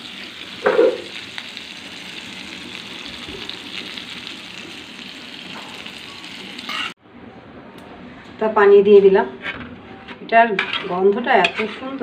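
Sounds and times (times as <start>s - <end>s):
food sizzling in oil: 0.0s - 7.0s.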